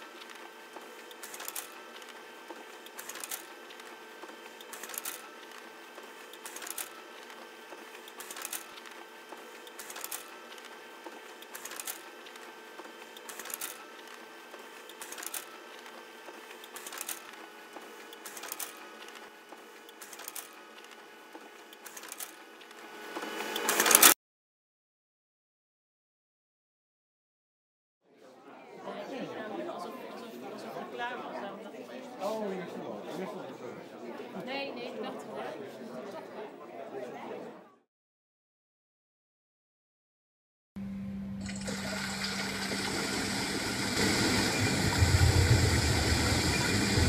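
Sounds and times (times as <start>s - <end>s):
photocopier humming: 0.0s - 24.2s, 40.8s - 47.0s.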